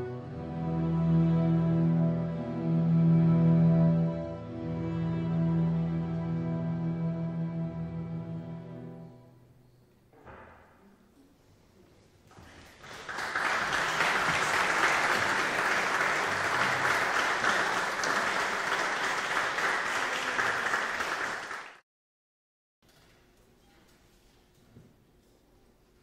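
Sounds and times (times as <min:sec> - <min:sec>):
audience applauding: 0:12.4 - 0:21.8.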